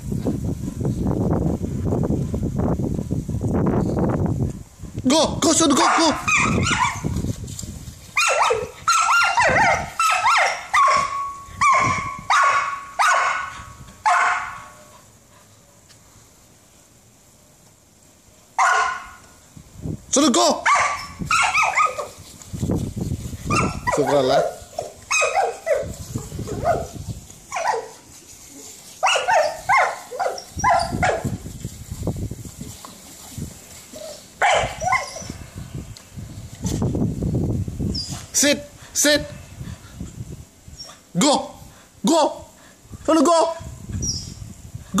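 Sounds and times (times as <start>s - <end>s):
dog barking sharply: 5.8s - 7.0s, 8.2s - 14.8s, 18.6s - 19.2s, 20.6s - 22.1s, 34.4s - 35.1s.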